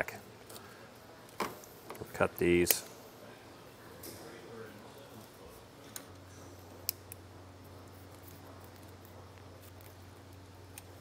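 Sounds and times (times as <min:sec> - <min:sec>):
steady low hum: 0:00.0 - 0:11.0
wire cutters snipping: 0:02.4 - 0:02.9.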